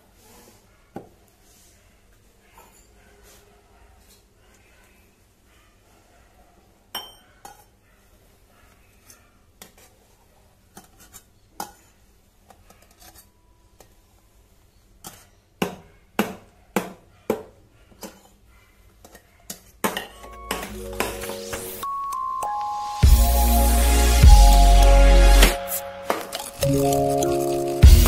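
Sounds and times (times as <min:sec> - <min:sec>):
metal milk pitchers clinking: 0:26.0 - 0:28.0
milk pouring: 0:26.1 - 0:28.0.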